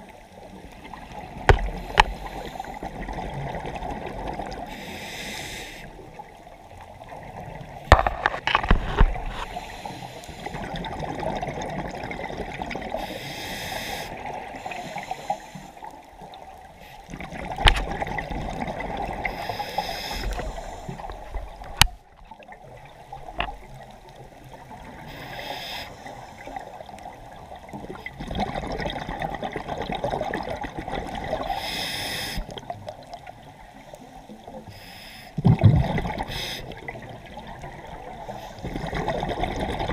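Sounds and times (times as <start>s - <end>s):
regulator inhale hiss: 1.6s - 3.0s, 4.7s - 6.0s, 9.4s - 10.8s, 12.9s - 15.9s, 19.2s - 21.3s, 25.0s - 26.8s, 31.5s - 32.6s, 34.6s - 35.4s, 36.2s - 36.8s, 38.2s - 38.7s
bubbling exhales: 35.4s - 39.9s.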